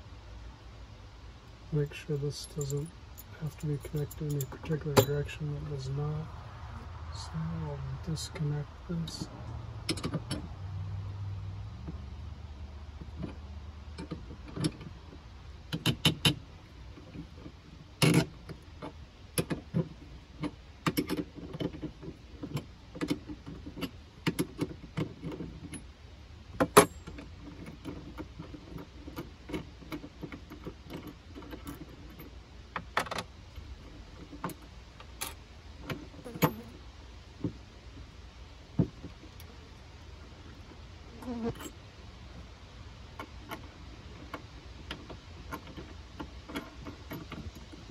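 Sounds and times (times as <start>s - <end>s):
metal clank: 2.4s - 5.4s.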